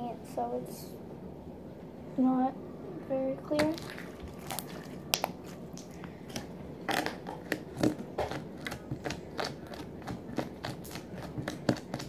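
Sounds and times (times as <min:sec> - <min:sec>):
slime squeezed by hand: 0:03.6 - 0:12.0.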